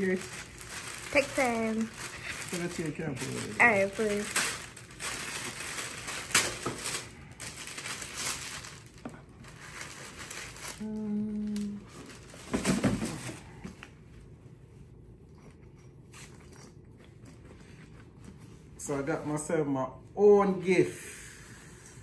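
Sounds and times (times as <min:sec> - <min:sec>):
gift packaging torn and crumpled: 0:00.0 - 0:12.5
person humming: 0:10.8 - 0:12.0.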